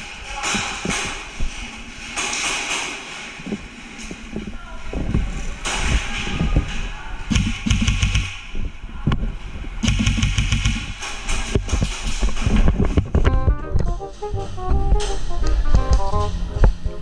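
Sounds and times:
low thuds and knocks: 0:02.2 - 0:16.3
airsoft rifle full-auto bursts: 0:09.8 - 0:10.9.

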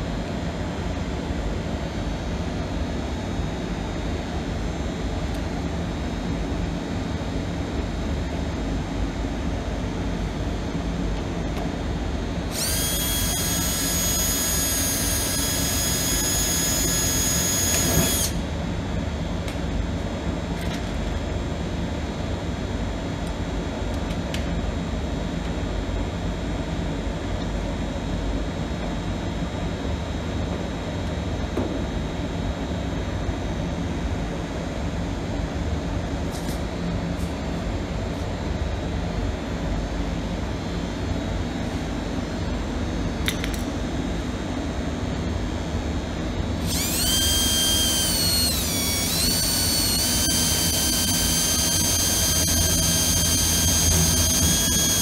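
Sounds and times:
small motor whining: 0:12.5 - 0:18.4, 0:46.6 - 0:55.0.

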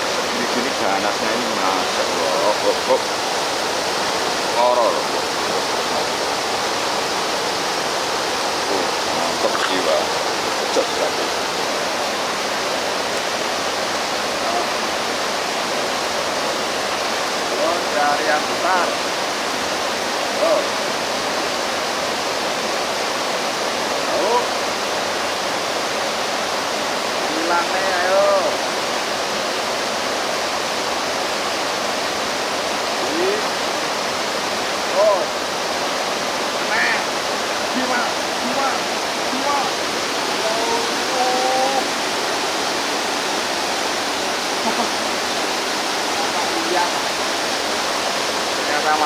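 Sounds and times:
flowing water rushing: 0:00.0 - 0:49.0.

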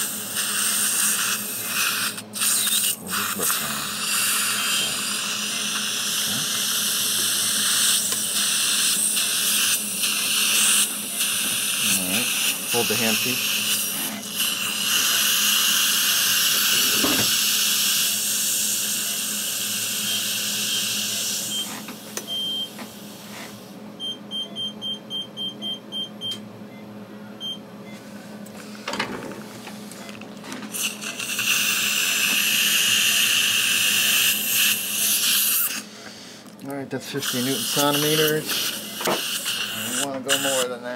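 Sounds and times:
implant motor whine: 0:02.2 - 0:22.3
motor unit beeps: 0:21.5 - 0:22.8, 0:24.0 - 0:28.0.

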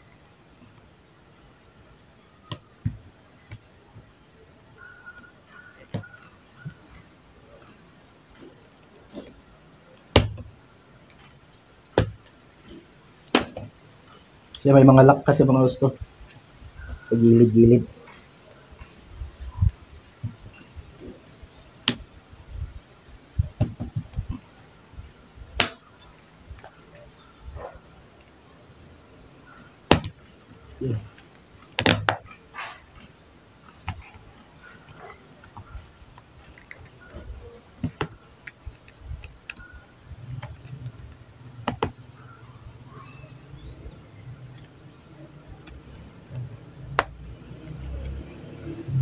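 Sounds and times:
dull handling thumps: 0:23.4 - 0:24.4.

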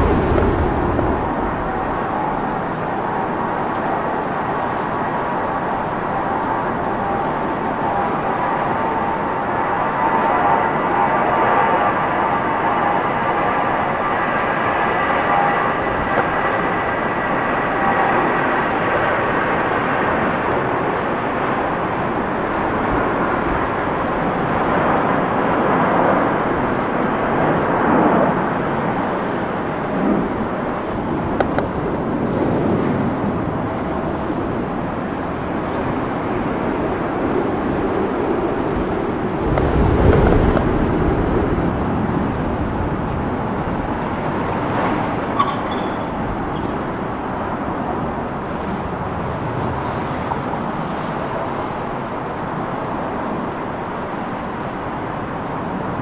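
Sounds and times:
low rumble: 0:00.0 - 0:03.4
jet engine roar: 0:00.0 - 0:56.0
jet engine whine: 0:00.0 - 0:56.0.

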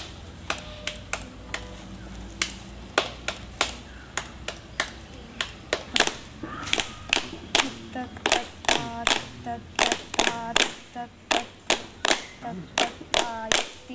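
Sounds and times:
rhythmic hand claps: 0:00.0 - 0:01.7, 0:02.3 - 0:13.9
faint voice: 0:04.9 - 0:11.6, 0:12.2 - 0:13.9.

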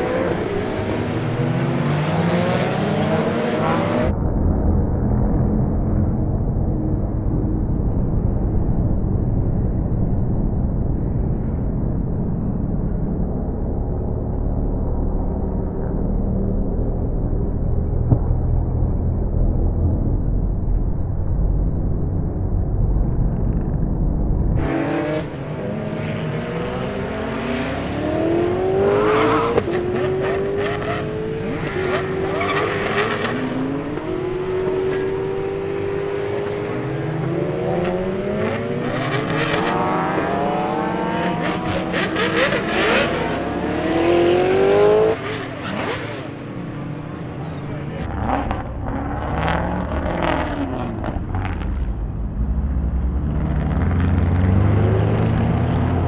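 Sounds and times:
race car engines revving: 0:00.0 - 0:08.6, 0:23.3 - 0:56.0
muffled engine rumble: 0:04.0 - 0:24.7, 0:46.5 - 0:56.0.

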